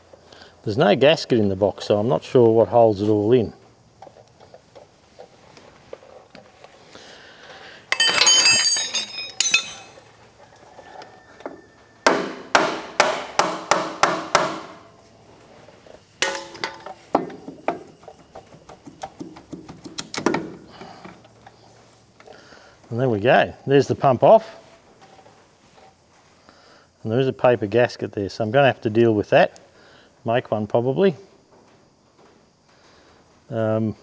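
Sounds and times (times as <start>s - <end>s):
metal tools clattering: 7.9s - 10.2s, 16.2s - 17.5s
sharp metal knocks: 12.0s - 14.9s, 16.2s - 18.0s.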